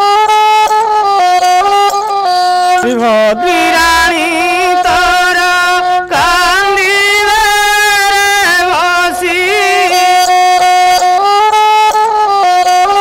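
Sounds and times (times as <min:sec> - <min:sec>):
bowed string instrument melody: 0:00.0 - 0:13.0
man singing chant-like: 0:02.8 - 0:10.6.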